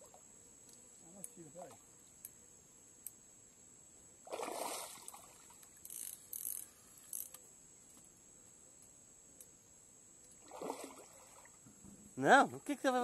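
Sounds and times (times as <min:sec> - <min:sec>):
fish splashing in water: 0:04.2 - 0:05.8, 0:10.4 - 0:11.6.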